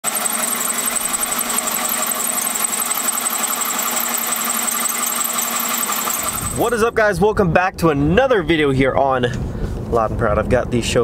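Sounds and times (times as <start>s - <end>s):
drill cutting sheet metal: 0.0s - 6.8s.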